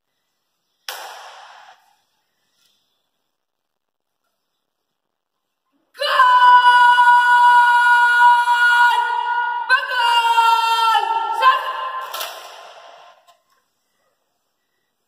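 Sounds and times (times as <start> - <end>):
sharp knock of rifles: 0.9 - 1.7.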